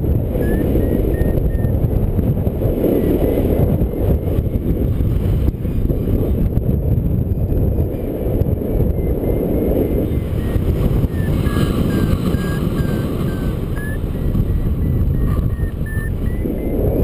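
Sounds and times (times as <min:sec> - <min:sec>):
wind buffeting microphone: 0:00.0 - 0:17.0
faint high beeps: 0:00.3 - 0:01.8, 0:08.7 - 0:17.0.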